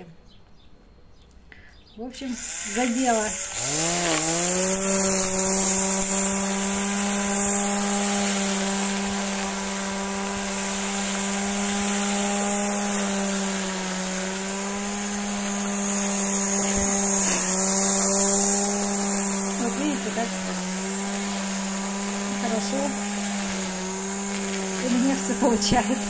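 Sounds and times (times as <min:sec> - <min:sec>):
string trimmer cutting grass: 0:02.1 - 0:26.0.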